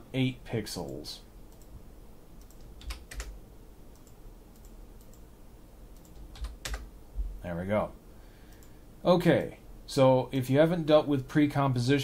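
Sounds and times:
faint low hum: 0:00.0 - 0:12.0
computer keyboard keystrokes: 0:02.4 - 0:03.4, 0:06.0 - 0:06.9.

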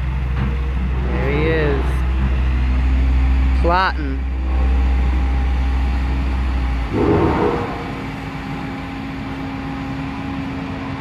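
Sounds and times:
diesel engine droning: 0:00.0 - 0:11.0
short rough engine noise: 0:04.4 - 0:09.0.

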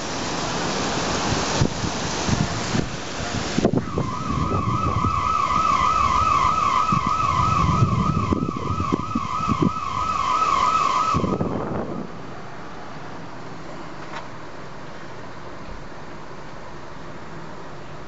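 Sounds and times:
heavy rain: 0:00.0 - 0:13.8
electronic alarm warbling: 0:03.8 - 0:12.1.

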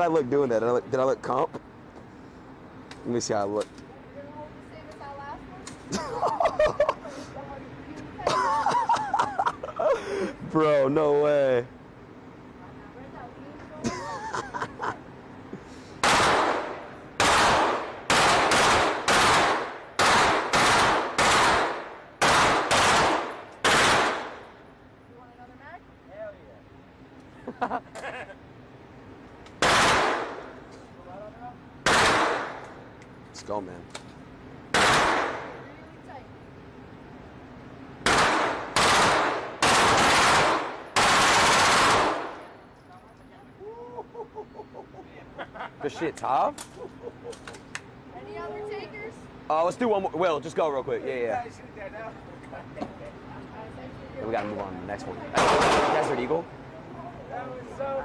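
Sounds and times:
rifle shots echoing: 0:16.0 - 0:24.5, 0:29.6 - 0:30.6, 0:31.8 - 0:32.6, 0:34.7 - 0:35.6, 0:38.0 - 0:42.5, 0:55.4 - 0:56.3.

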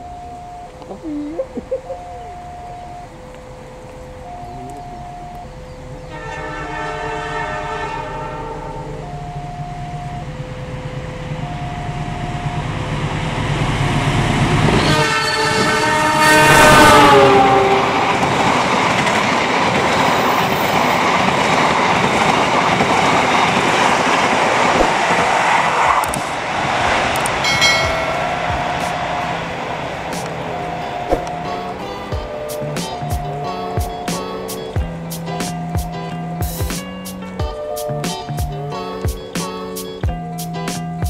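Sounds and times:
two-note level-crossing alarm: 0:00.0 - 0:00.9, 0:01.8 - 0:13.2, 0:27.4 - 0:29.3, 0:30.4 - 0:34.9
train wheels on rails: 0:02.0 - 0:41.0
locomotive horn: 0:03.4 - 0:09.4, 0:14.6 - 0:18.4.

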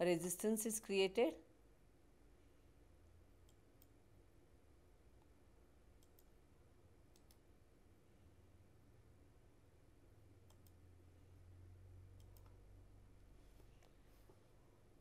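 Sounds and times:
computer mouse clicks: 0:03.4 - 0:04.0, 0:06.0 - 0:06.4, 0:07.1 - 0:07.4, 0:10.4 - 0:10.8, 0:12.2 - 0:12.6.

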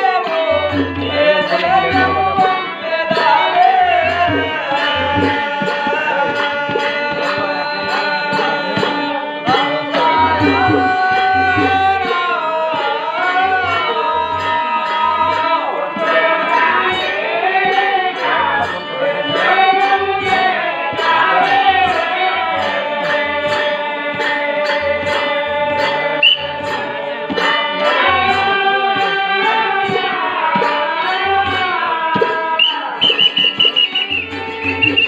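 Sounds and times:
harmonium held notes: 0:00.0 - 0:35.0
person singing: 0:00.0 - 0:35.0
drum beat: 0:00.1 - 0:14.4, 0:31.5 - 0:35.0.

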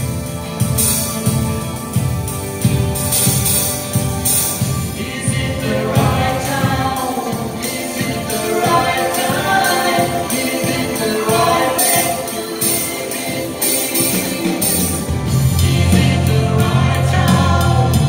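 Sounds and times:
live band music: 0:00.0 - 0:18.0
person singing: 0:04.9 - 0:18.0.

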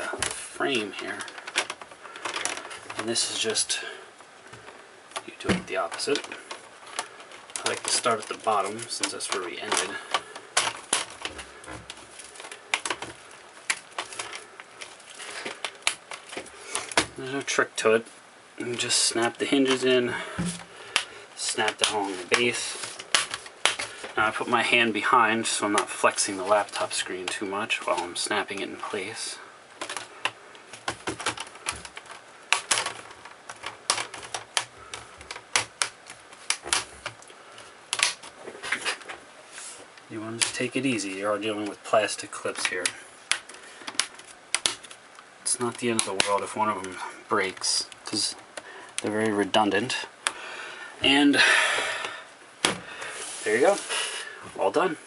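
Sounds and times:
plastic clips snapping: 0:04.5 - 0:17.2, 0:20.4 - 0:24.2, 0:29.8 - 0:39.1, 0:42.5 - 0:49.1
plastic clips snapping into place: 0:29.8 - 0:37.3, 0:37.9 - 0:39.0, 0:42.6 - 0:46.4.

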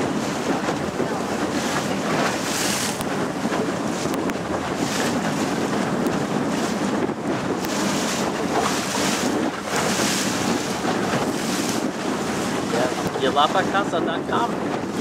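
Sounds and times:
water splashing against hull: 0:00.0 - 0:15.0
wind buffeting microphone: 0:00.0 - 0:15.0.

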